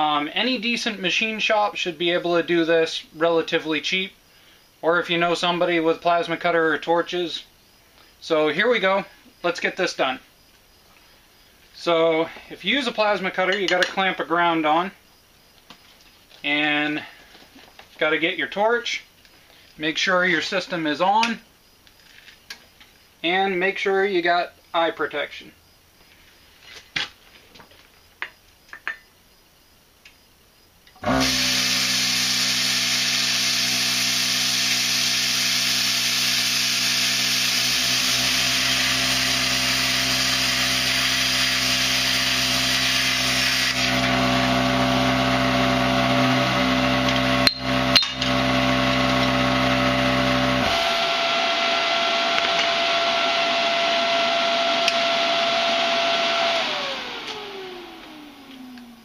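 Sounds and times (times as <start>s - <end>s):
steady whine: 31.0s - 59.0s.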